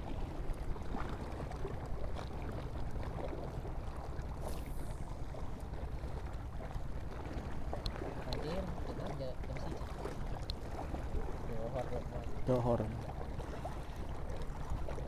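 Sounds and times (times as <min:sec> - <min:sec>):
low outdoor rumble: 0:00.0 - 0:15.0
fishing line whooshing off reel: 0:04.4 - 0:05.2.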